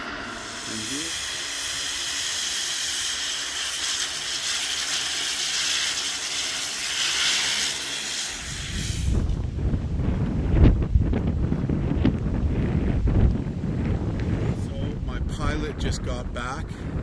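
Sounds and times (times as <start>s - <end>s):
floatplane engine and propeller: 0.0s - 15.8s.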